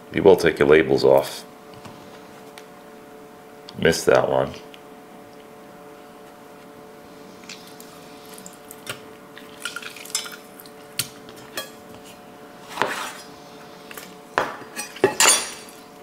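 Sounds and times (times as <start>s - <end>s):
faint hum: 0.0s - 16.0s
knife cutting on wooden board: 12.7s - 13.2s.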